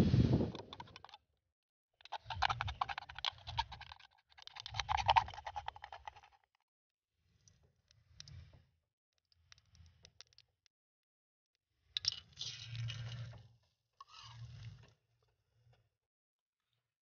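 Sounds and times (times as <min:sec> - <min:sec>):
aluminium can crinkling: 0:00.5 - 0:01.2, 0:02.0 - 0:06.3.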